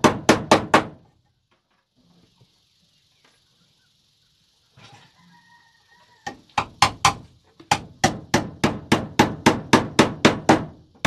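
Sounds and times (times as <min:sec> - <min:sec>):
hammer striking nail into wood: 0:00.0 - 0:01.0, 0:06.6 - 0:10.8.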